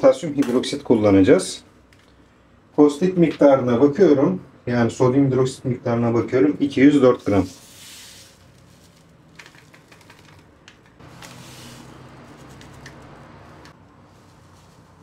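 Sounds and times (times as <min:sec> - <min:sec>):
granules pouring hiss: 0:07.3 - 0:09.0, 0:11.0 - 0:15.0.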